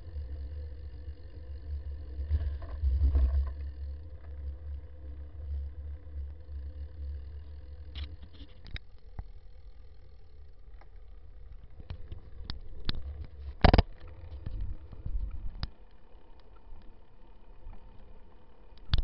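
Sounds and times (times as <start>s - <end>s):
light clicks and rattles: 2.2s - 9.4s, 10.6s - 19.0s
wind and road rumble: 11.6s - 15.7s.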